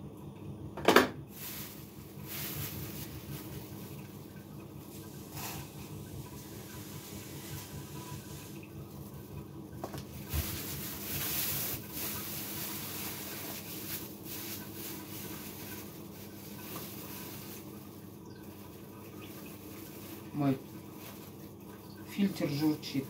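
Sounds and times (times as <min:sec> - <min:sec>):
water filter gurgling: 0:00.0 - 0:23.0
water trickling: 0:01.3 - 0:23.0.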